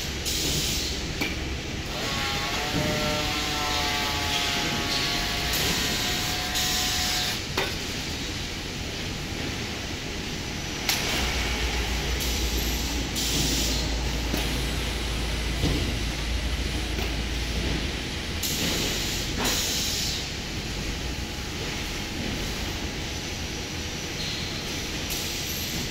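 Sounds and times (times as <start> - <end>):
packaging machinery running: 1.7 - 9.6.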